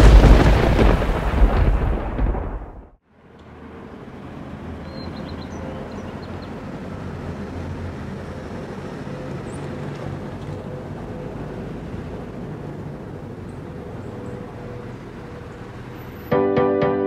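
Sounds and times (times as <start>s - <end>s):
vehicle engine and road noise: 3.0s - 16.4s.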